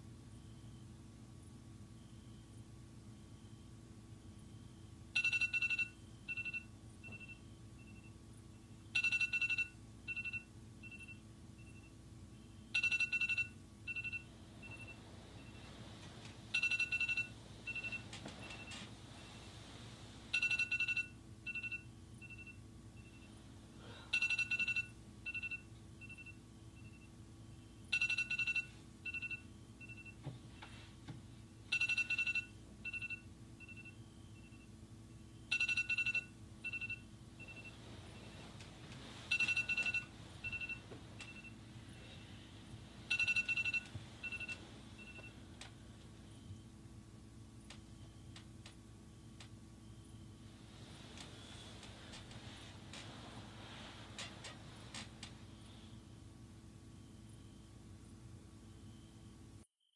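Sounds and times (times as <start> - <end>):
two-tone alarm ringtone: 4.3 - 8.1, 8.9 - 15.7, 16.5 - 18.8, 20.3 - 30.2, 31.7 - 38.5, 39.3 - 45.4, 57.0 - 57.7, 58.7 - 59.3.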